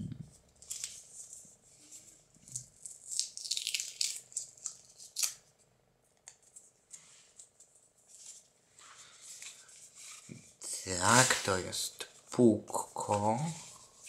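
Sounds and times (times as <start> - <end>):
packing paper crinkling: 2.4 - 5.4.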